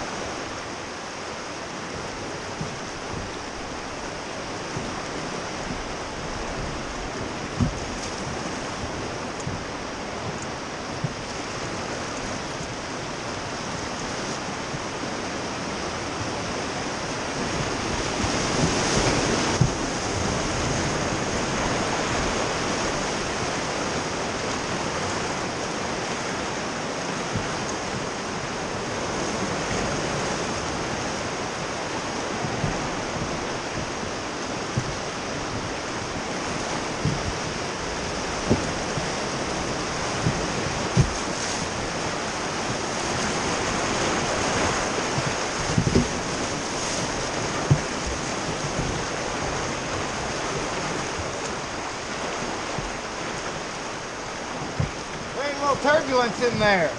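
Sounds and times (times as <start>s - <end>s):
whitewater rushing: 0.0s - 56.9s
short thumps: 7.6s - 8.0s, 40.2s - 41.9s.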